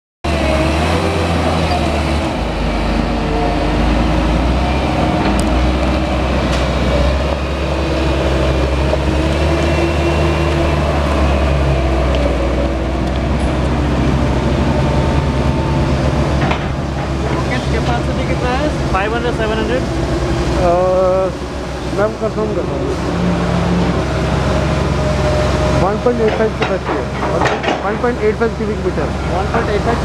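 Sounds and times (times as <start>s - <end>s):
diesel engine running loudly: 0.2s - 30.0s.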